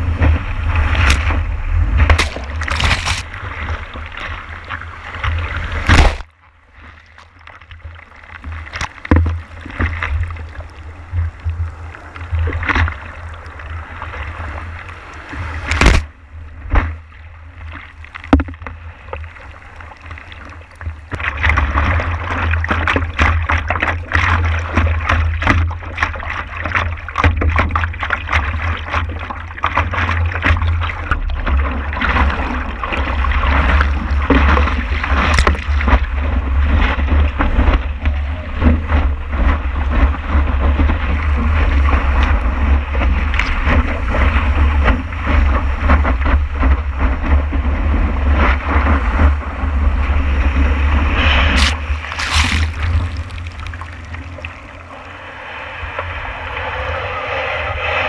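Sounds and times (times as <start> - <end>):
whitewater rushing and splashing: 0.0 - 7.3, 17.6 - 56.1.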